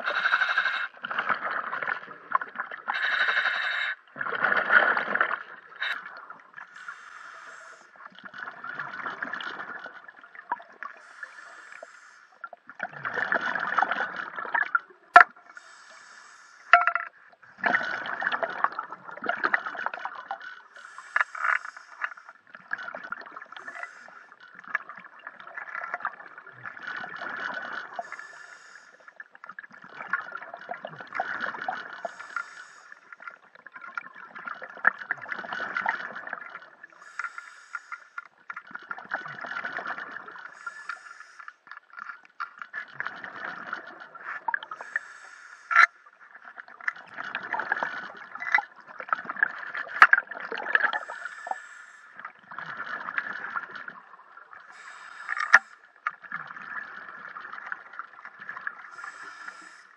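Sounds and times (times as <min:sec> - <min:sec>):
scuba regulator bubbling underwater: 0:04.1 - 0:11.6, 0:16.7 - 0:21.6.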